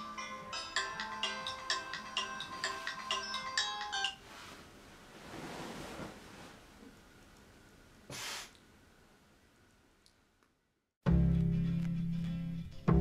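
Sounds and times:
phone chiming melody: 0.0 - 4.2
bedding rustling: 4.0 - 7.2.

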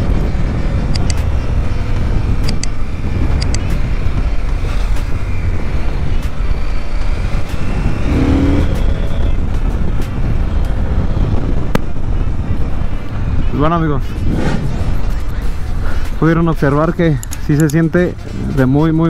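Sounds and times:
motorcycle engine running: 0.0 - 13.3
wind noise on microphone: 0.0 - 19.0.

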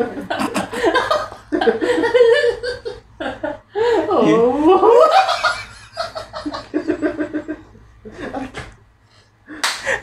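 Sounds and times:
men laughing: 0.0 - 4.1, 4.8 - 8.7.

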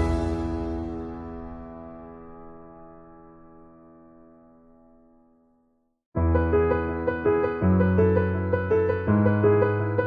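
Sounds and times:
held keyboard chord: 0.0 - 2.0.

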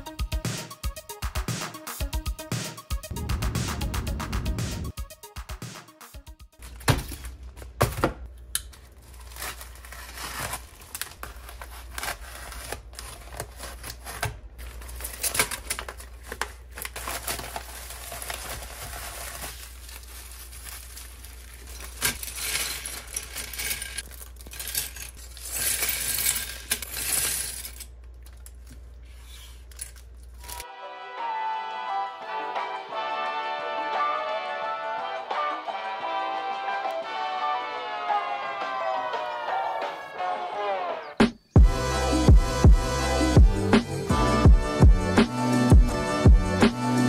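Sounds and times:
paper and plastic crinkling: 8.7 - 30.7.

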